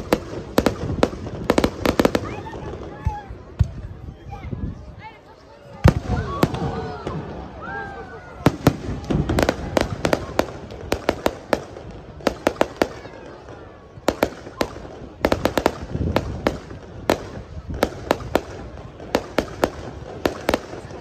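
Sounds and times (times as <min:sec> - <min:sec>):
fireworks cracking and popping: 0:00.0 - 0:03.9, 0:08.4 - 0:21.0
heavy fireworks booms: 0:00.0 - 0:03.9, 0:05.8 - 0:07.6, 0:08.3 - 0:21.0.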